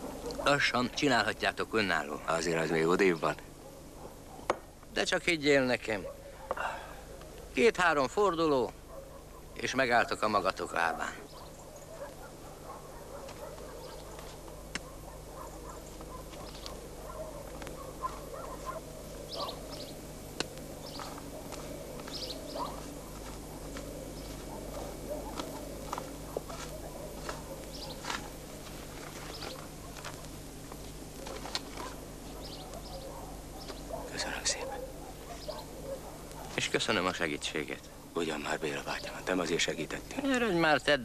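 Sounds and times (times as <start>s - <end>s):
low hum: 10.5s - 34.1s
rustling: 20.4s - 34.0s.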